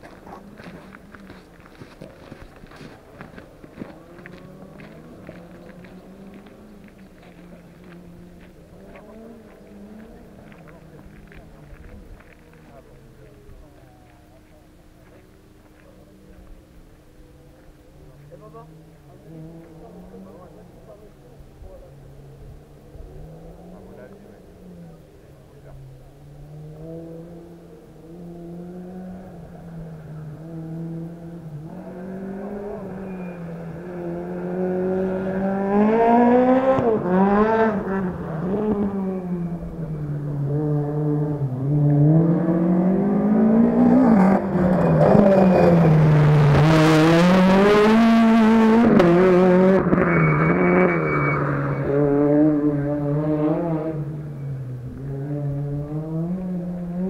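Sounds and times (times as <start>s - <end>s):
rally car engine revving: 0.0s - 14.3s, 17.2s - 57.0s.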